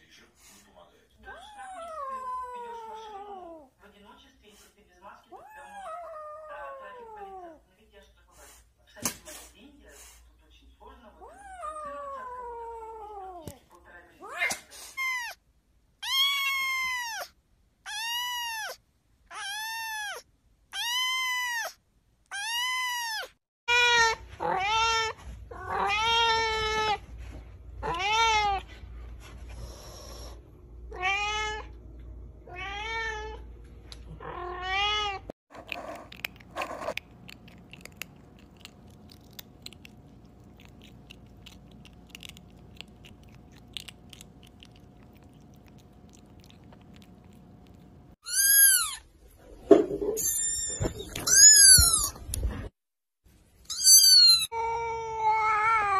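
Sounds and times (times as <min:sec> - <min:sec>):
cat meowing: 0:16.0 - 0:17.3, 0:17.9 - 0:27.0, 0:27.8 - 0:28.6
kitten meowing: 0:16.0 - 0:17.3, 0:17.9 - 0:25.1, 0:53.7 - 0:55.9.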